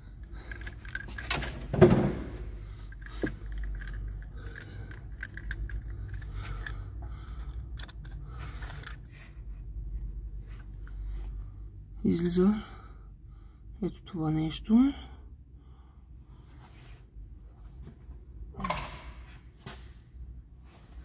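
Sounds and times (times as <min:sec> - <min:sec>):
metal clinks and scrapes of tool: 0:00.2 - 0:01.7, 0:02.6 - 0:09.4.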